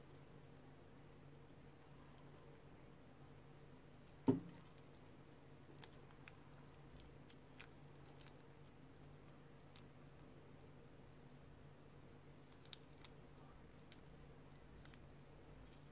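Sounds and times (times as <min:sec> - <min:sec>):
sharp knock: 0:04.3 - 0:04.6.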